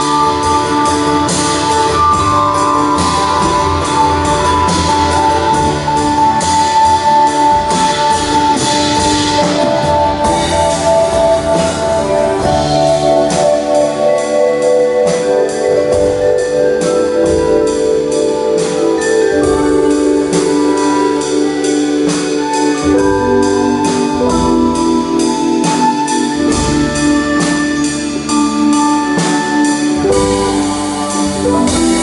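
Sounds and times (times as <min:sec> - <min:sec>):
acoustic guitar: 0:00.0 - 0:32.0
drum kit with cymbal strokes: 0:00.0 - 0:32.0
upright bass: 0:00.0 - 0:32.0
vibraphone: 0:00.0 - 0:32.0.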